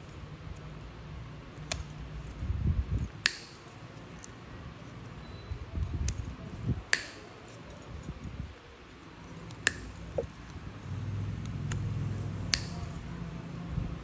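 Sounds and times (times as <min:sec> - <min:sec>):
low crunching and handling noise: 0:00.0 - 0:14.0
nail nippers snapping through nail: 0:01.6 - 0:02.0, 0:03.0 - 0:04.4, 0:06.9 - 0:07.2, 0:09.3 - 0:10.3, 0:11.4 - 0:12.9.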